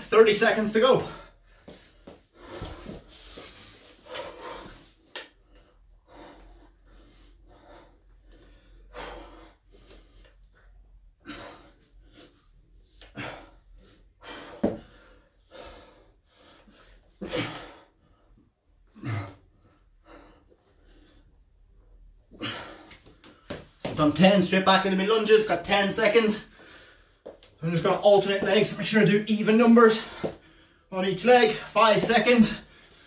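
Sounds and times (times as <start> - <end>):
man breathing hard: 1.0 - 21.7, 22.3 - 23.7, 26.4 - 27.6, 29.9 - 30.9, 32.5 - 33.0.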